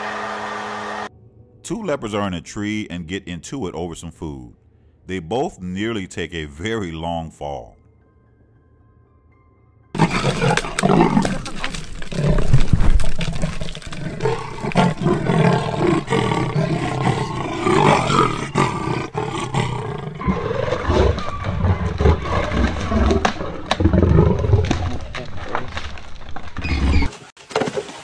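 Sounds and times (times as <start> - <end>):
leopards snarling: 10.0 - 24.8.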